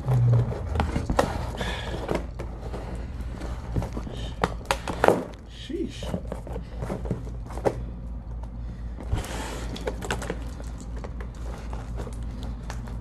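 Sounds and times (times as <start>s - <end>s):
cardboard scraping rustle: 0.0s - 5.1s
steady low hum: 0.0s - 13.0s.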